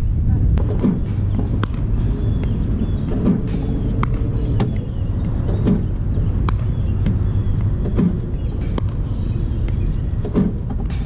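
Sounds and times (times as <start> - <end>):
steady low rumble: 0.0 - 11.0
paddle hitting ball: 0.6 - 4.8, 5.5 - 11.0.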